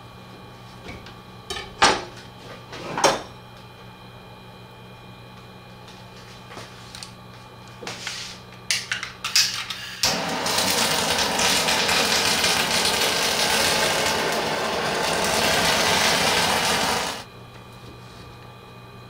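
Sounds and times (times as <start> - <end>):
gas flame hissing: 9.4 - 17.3.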